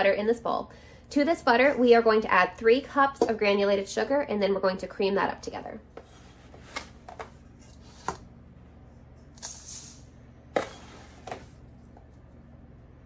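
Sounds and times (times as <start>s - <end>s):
sugar pouring hiss: 9.4s - 10.1s.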